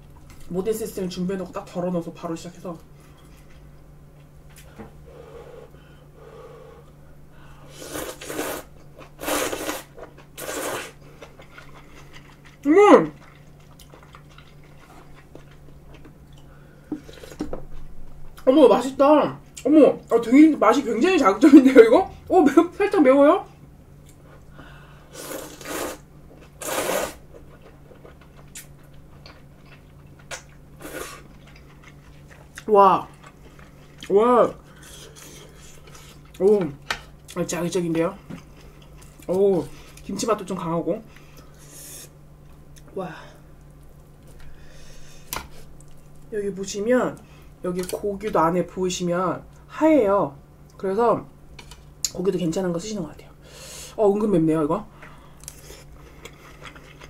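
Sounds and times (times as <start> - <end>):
person slurping noodles: 7.7 - 11.0, 25.1 - 26.0, 26.6 - 27.2, 30.8 - 31.3
noodle slurping: 7.7 - 15.5, 25.1 - 26.0, 26.6 - 27.2
chewing with small clicks: 11.2 - 16.5, 27.4 - 30.6, 31.3 - 34.1, 38.4 - 40.1, 45.3 - 46.3, 55.0 - 57.0.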